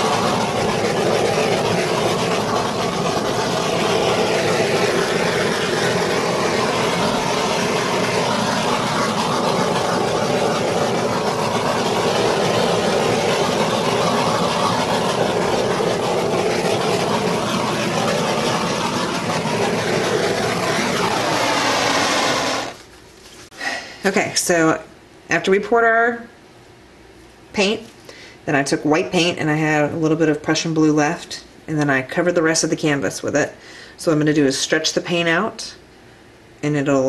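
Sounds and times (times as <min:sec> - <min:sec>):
butane torch hissing: 0:00.0 - 0:23.0.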